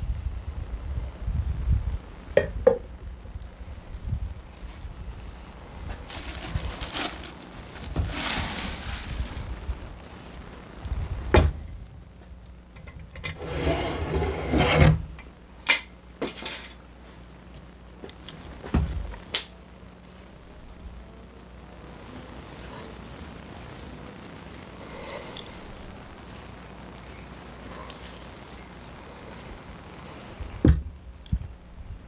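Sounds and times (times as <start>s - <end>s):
plastic bag liner crinkling: 6.1s - 9.6s.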